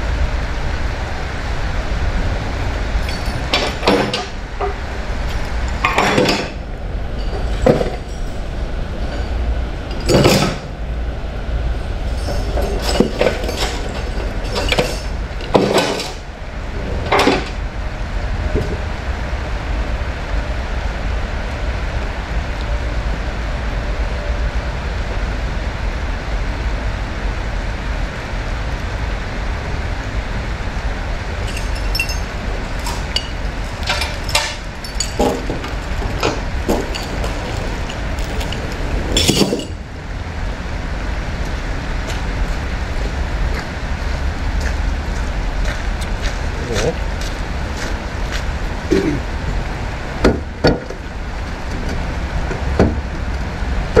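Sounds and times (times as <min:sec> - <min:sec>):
metallic clinks and knocks: 0:03.0 - 0:10.7, 0:12.0 - 0:16.2, 0:31.4 - 0:39.8.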